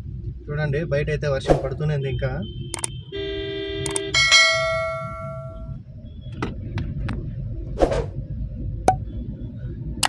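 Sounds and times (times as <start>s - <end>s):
short swish: 1.4s - 1.8s, 7.8s - 8.2s
electronic chime: 4.2s - 5.8s.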